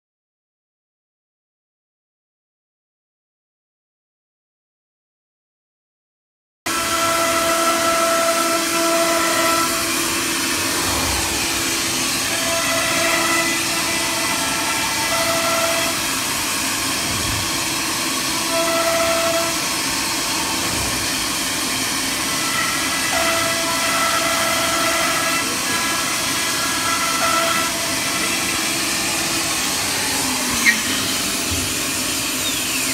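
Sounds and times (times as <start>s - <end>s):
cnc router spindle hissing: 6.7s - 32.9s.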